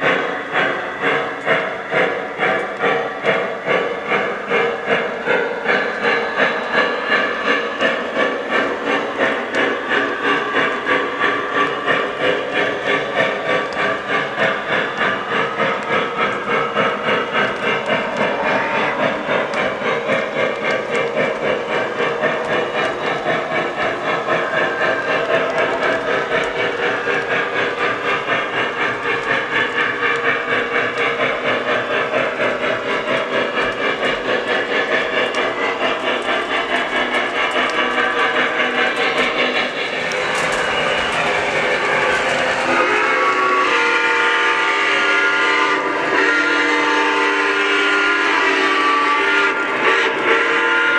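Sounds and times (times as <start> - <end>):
model train steam chuffing: 0.0 - 50.9
steam hiss: 0.0 - 50.9
model cars rolling on track: 31.8 - 42.6.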